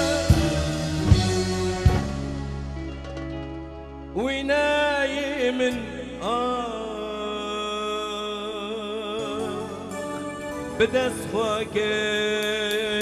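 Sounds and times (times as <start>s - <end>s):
man singing: 0.0s - 2.2s, 4.1s - 13.0s
live band playing: 0.0s - 5.2s, 9.2s - 13.0s.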